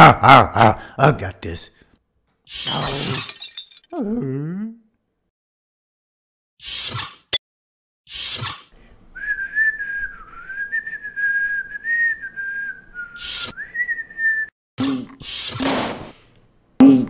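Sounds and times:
person whistling a tune: 9.2s - 14.5s.

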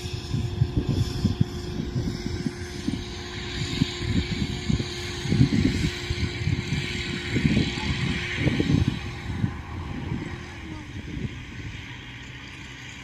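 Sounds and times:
combine harvester engine running: 0.0s - 13.0s
wind rumble on microphone: 0.0s - 13.0s.

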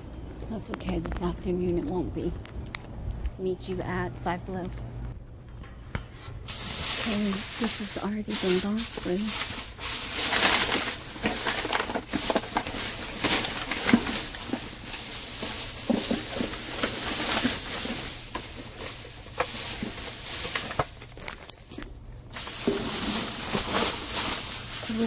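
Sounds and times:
plastic bags and cardboard rustling: 6.2s - 25.0s.

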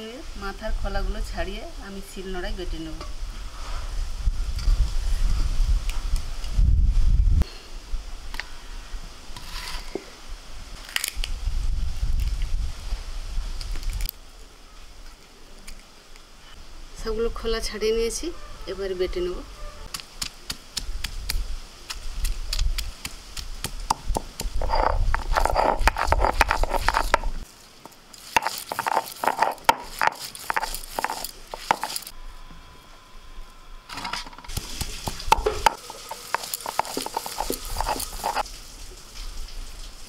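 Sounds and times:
grinding stone scraping on stone slab: 24.5s - 27.4s, 28.2s - 32.1s, 35.3s - 38.4s.

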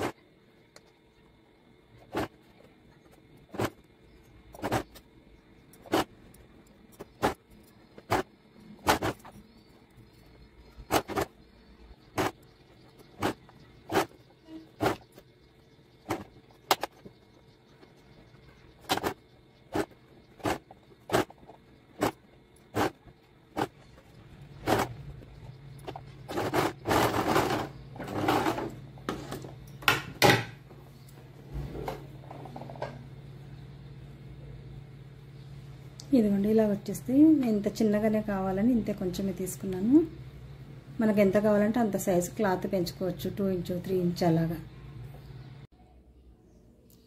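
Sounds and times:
steady hum: 0.0s - 45.7s
sewing machine stitching: 24.6s - 25.0s, 25.8s - 28.8s.

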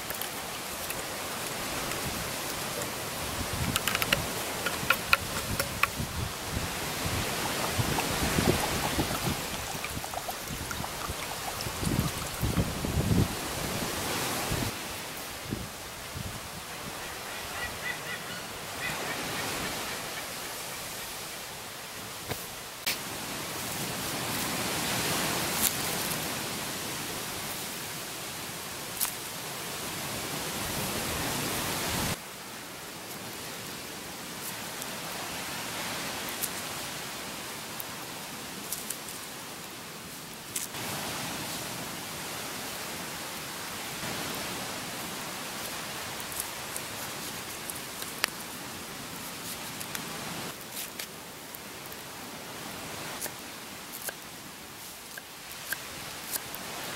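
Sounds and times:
campfire crackling: 0.0s - 15.3s, 42.6s - 56.9s.

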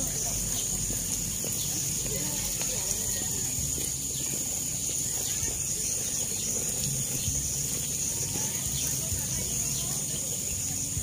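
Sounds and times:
garden hose spraying water: 0.0s - 11.0s
high-pitched insect drone: 0.0s - 11.0s.

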